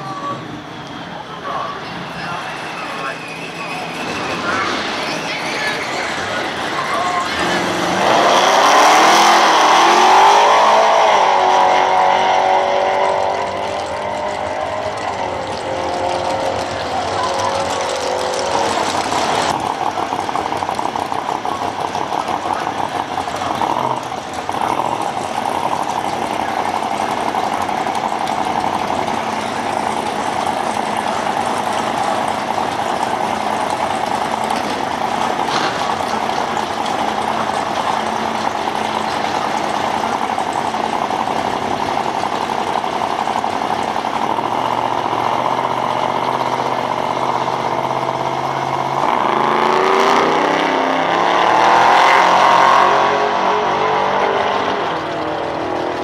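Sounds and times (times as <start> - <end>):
supercharged engine idling: 0.0 - 56.0
engine knock: 13.0 - 53.1, 54.1 - 56.0.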